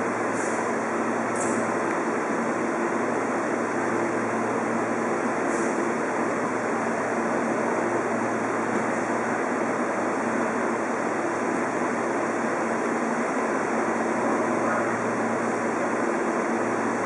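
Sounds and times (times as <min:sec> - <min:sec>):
electric train rushing hum: 0:00.0 - 0:17.0.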